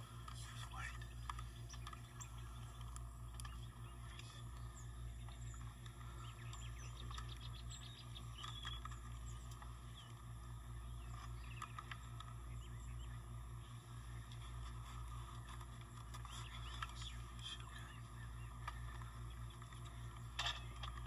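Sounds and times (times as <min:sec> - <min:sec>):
small birds chirping: 0:00.0 - 0:21.0
steady low hum: 0:00.0 - 0:21.0.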